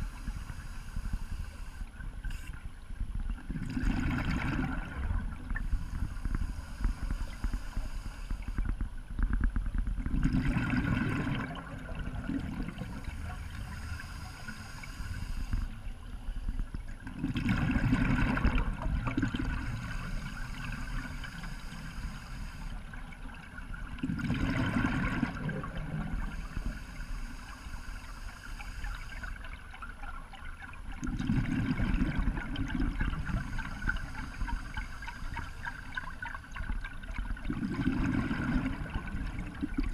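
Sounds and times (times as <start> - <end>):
regulator inhale hiss: 0.0 - 2.6, 5.5 - 8.7, 12.7 - 16.6, 19.4 - 22.9, 25.4 - 29.4, 33.0 - 36.1
exhaled bubbles gurgling: 0.0 - 39.9.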